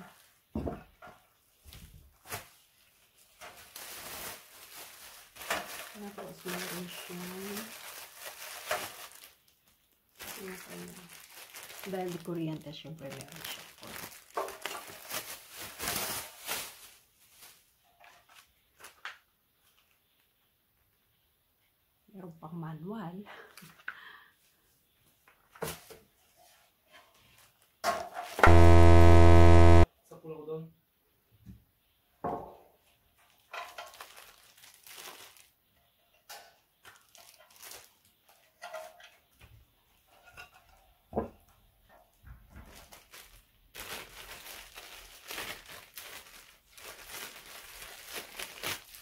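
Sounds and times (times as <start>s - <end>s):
plastic wrapping crinkling: 2.1s - 19.0s, 33.5s - 35.5s, 36.9s - 38.1s, 42.7s - 49.0s.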